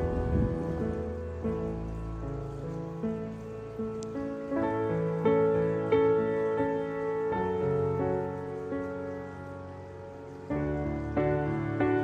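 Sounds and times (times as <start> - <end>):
soft instrumental music: 0.0 - 12.0.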